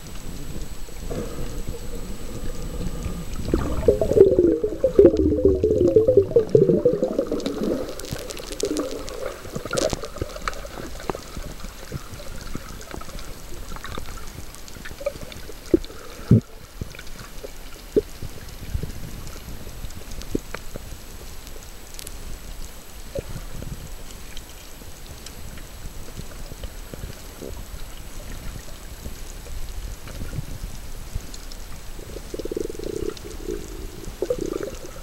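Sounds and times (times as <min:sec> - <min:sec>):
bubbly burble: 0:00.0 - 0:17.0, 0:32.0 - 0:35.0
muffled underwater rush: 0:00.0 - 0:20.3, 0:24.9 - 0:35.0
underwater clicks and pops: 0:03.4 - 0:11.4.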